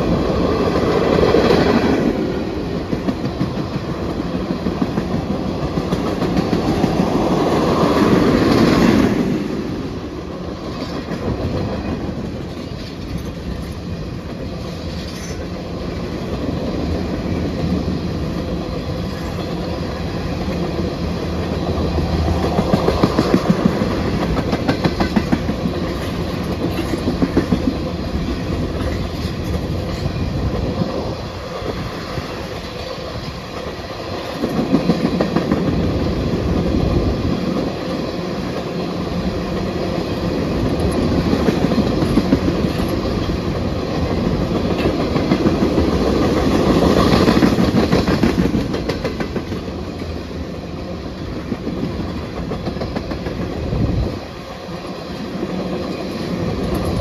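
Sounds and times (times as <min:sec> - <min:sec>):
freight train rumbling past: 0:00.0 - 0:57.0
wheels clacking over rail joints: 0:18.2 - 0:31.9, 0:32.5 - 0:50.4.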